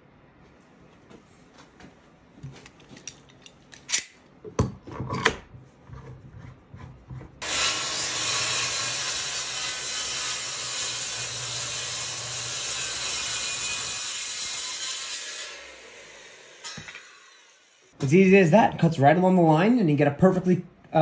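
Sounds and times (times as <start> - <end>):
clamps clicking and knocking: 2.6 - 5.5
circular saw cutting wood: 7.4 - 18.0.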